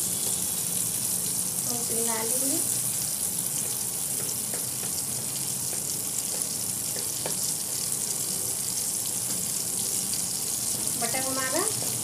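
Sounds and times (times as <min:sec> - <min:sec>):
butter sizzling in a pan: 0:00.0 - 0:12.0
wooden spatula tapping a pan: 0:03.6 - 0:07.9, 0:09.2 - 0:09.5.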